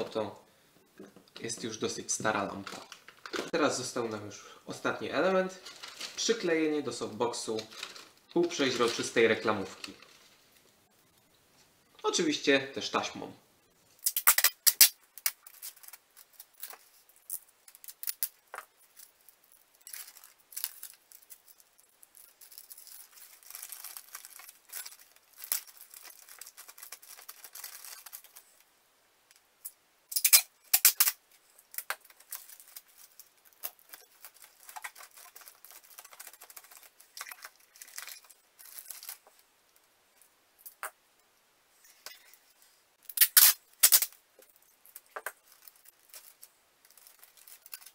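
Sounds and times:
plastic bag and tape crinkling: 2.3 - 4.1, 5.1 - 10.8, 14.0 - 28.7, 30.2 - 39.5, 43.0 - 47.9
packing tape ripping off roll: 14.0 - 19.1, 19.8 - 28.4, 30.1 - 39.2, 43.0 - 44.2.

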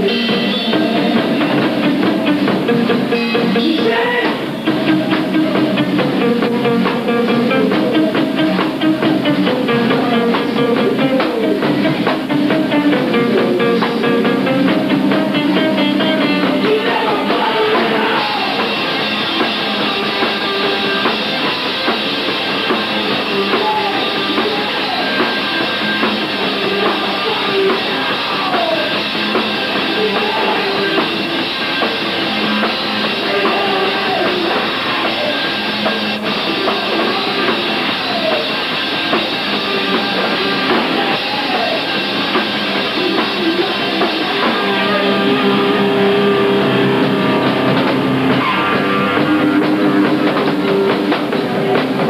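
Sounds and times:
drum kit: 0.0 - 52.0
electric guitars: 0.0 - 52.0.

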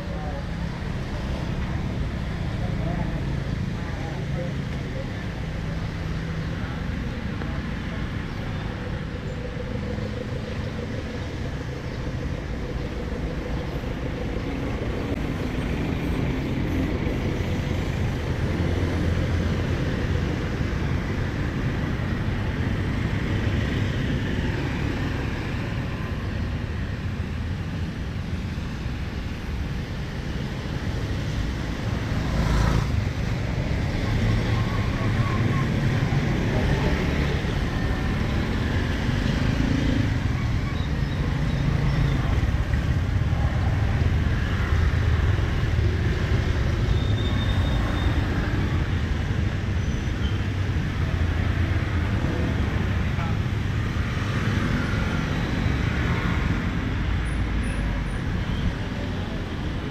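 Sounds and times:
street traffic: 0.0 - 59.9.

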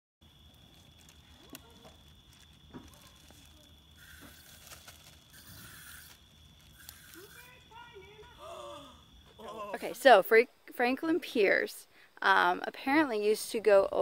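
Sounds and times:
campfire crackling and popping: 0.2 - 9.4.

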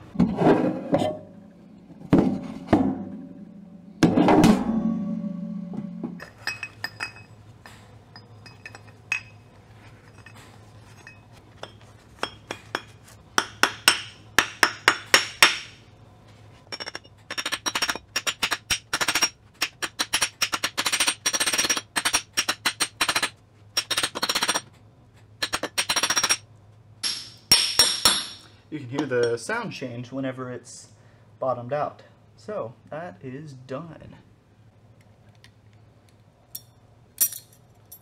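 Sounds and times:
metallic clink: 6.2 - 7.4, 8.1 - 12.9, 36.5 - 38.0.

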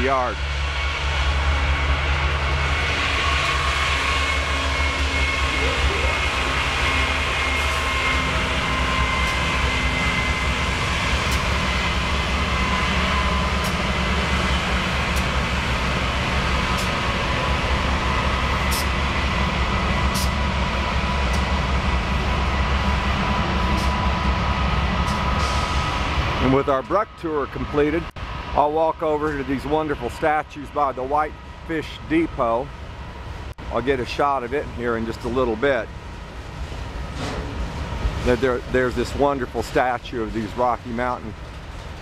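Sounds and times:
diesel locomotive engine rumble: 0.0 - 42.0.

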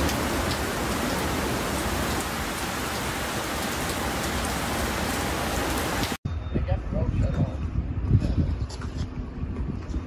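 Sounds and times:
heavy rain: 0.0 - 6.2.

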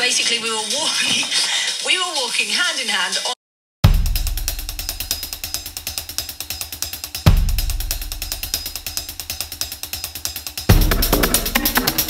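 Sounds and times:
drum beat with hi-hat: 0.0 - 12.0
deep bass hit: 3.8 - 5.1
low bass: 10.7 - 12.0.

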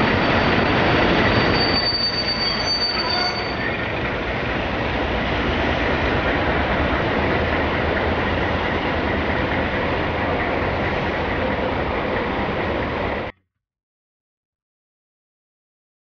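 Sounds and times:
rail machine rolling past: 0.0 - 13.3
low engine hum: 3.7 - 13.3.

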